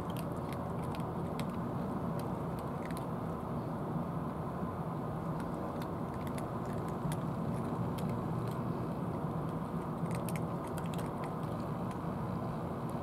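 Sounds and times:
cats crunching dry kibble: 0:00.0 - 0:03.4, 0:05.2 - 0:13.0
low background rumble: 0:00.0 - 0:13.0.

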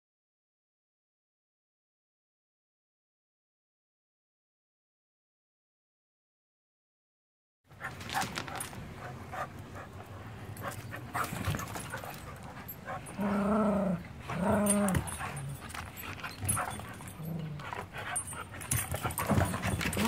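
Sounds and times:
clicks and scuffles: 0:07.8 - 0:09.6
dog whining: 0:10.6 - 0:20.0.

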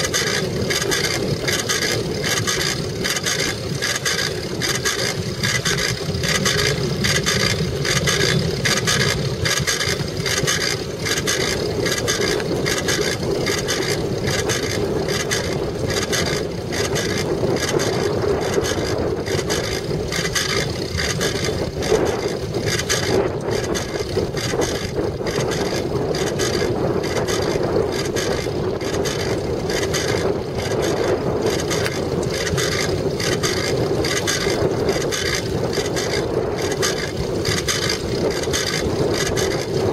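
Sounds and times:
bicycle rolling over hard ground: 0:00.0 - 0:39.9
bike rattling: 0:00.0 - 0:39.9.

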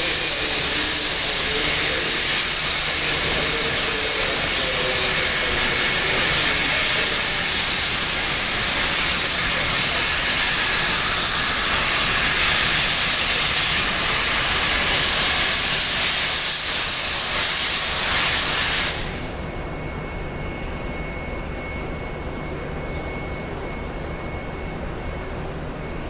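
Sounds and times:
steam locomotive blowing off steam: 0:00.0 - 0:19.3.

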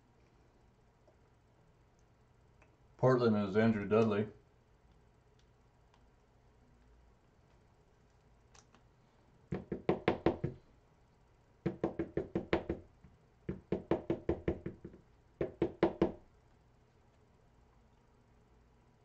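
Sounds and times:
knocks on a hard surface: 0:09.5 - 0:10.6, 0:11.6 - 0:12.8, 0:13.5 - 0:16.2.

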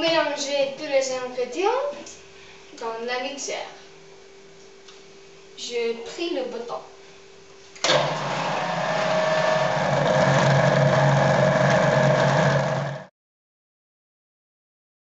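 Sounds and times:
food processor motor running: 0:07.9 - 0:13.1.

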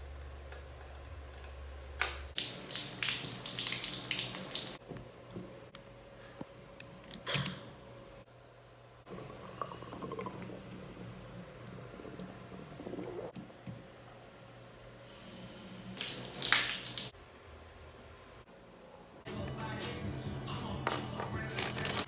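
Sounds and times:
water spraying and dripping: 0:02.3 - 0:04.8, 0:16.0 - 0:17.1.

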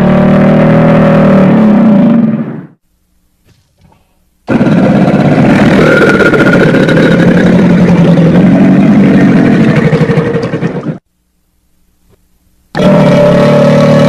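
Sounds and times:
crocodilian growling call: 0:03.8 - 0:10.4, 0:12.8 - 0:14.0.

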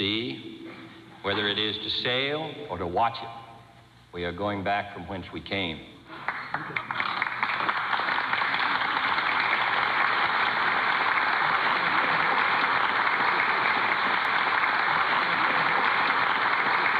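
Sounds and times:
audience applauding: 0:06.1 - 0:16.9.

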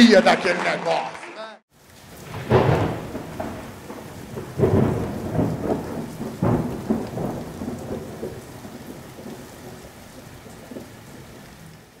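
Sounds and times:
audience applause: 0:00.0 - 0:01.6.

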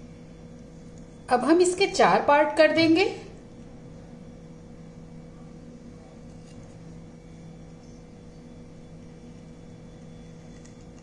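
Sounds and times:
low machine hum: 0:00.0 - 0:11.0.

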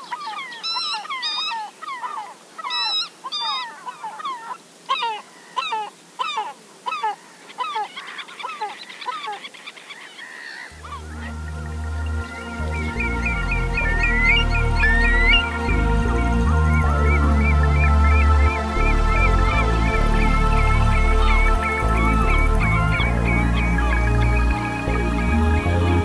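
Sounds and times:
birds honking calls: 0:10.2 - 0:26.0
music with low steady tones: 0:10.8 - 0:26.0.

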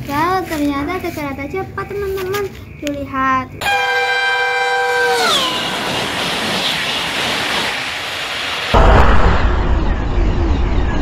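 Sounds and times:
train horn chord: 0:03.6 - 0:05.5.

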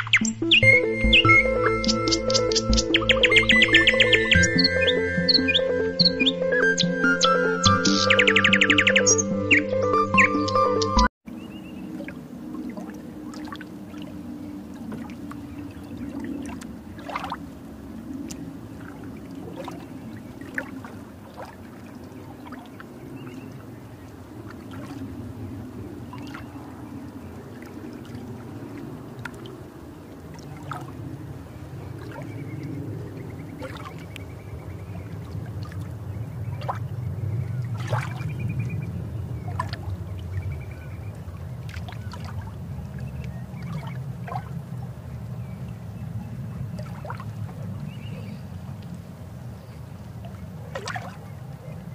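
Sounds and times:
underwater bubbling rumble: 0:11.7 - 0:51.9.

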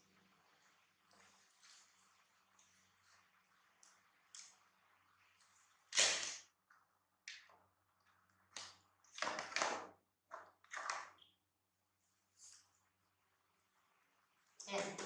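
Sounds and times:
plastic knocking on tiled floor: 0:09.1 - 0:11.1.

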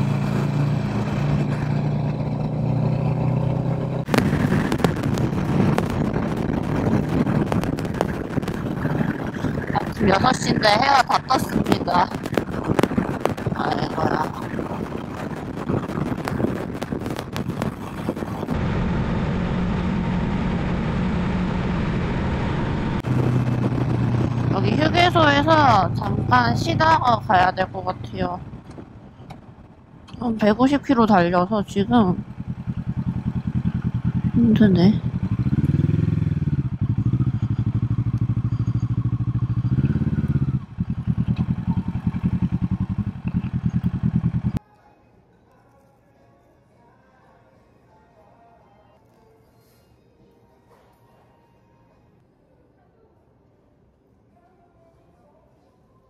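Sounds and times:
motorcycle engine droning: 0:00.0 - 0:44.6
wind and road noise: 0:00.0 - 0:44.6
wind buffeting microphone: 0:04.0 - 0:18.8, 0:21.5 - 0:31.1.

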